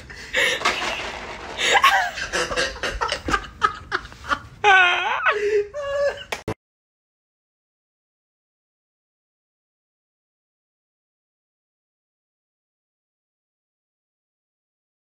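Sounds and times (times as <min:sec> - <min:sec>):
person laughing hard: 0:00.0 - 0:06.6.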